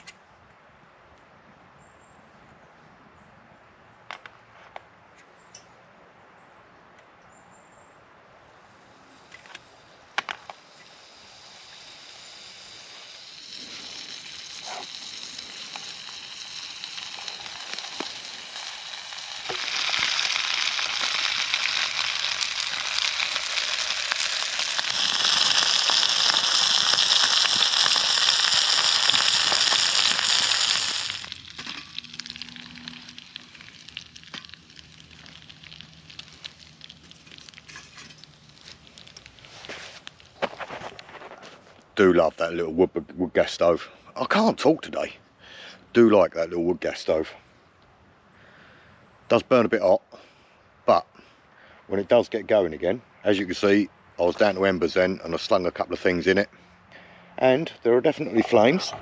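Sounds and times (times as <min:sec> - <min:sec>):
burgers sizzling in a frying pan: 0:09.6 - 0:40.6.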